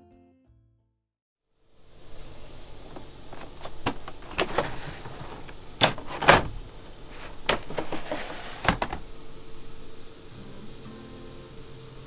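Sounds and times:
window blind sliding along rail: 2.7 - 9.1.

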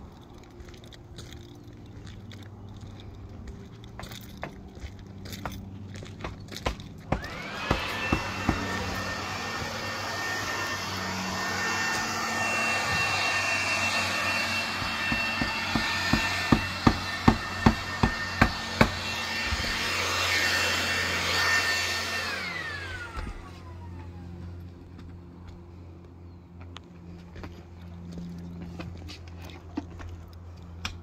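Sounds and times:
air blower whine and rush: 7.0 - 24.5.

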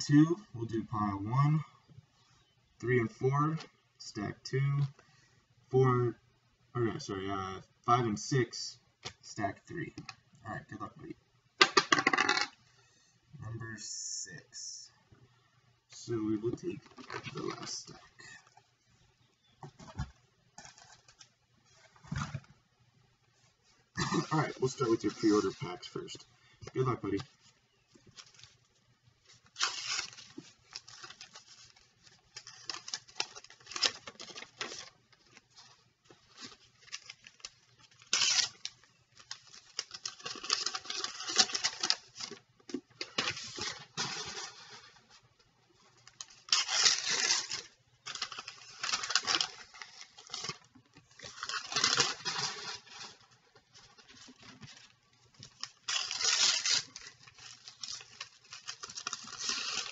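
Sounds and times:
cards rustling: 16.3 - 18.6
wrappers crinkling: 27.1 - 59.9
card packs tearing open: 29.4 - 34.9, 36.3 - 42.4, 46.1 - 53.3, 54.1 - 59.9.

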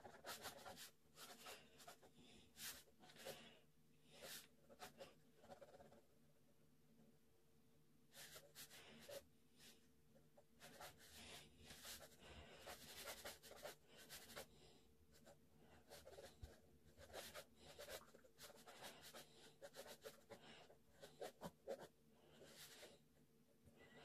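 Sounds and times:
pen scratching on paper: 0.0 - 3.4, 4.2 - 6.0, 10.6 - 14.5, 15.2 - 22.9.

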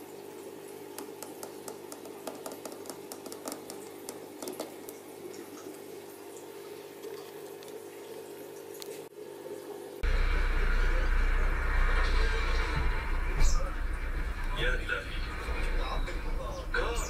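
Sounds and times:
aquarium water bubbling: 0.0 - 17.0
small pops and drips: 0.9 - 9.1
steady hum: 10.0 - 17.0.

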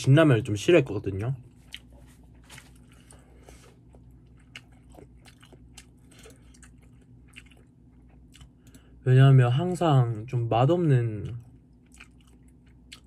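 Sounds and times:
faint low hum: 0.0 - 13.0
person chewing noodles: 1.5 - 9.0, 11.2 - 13.0.

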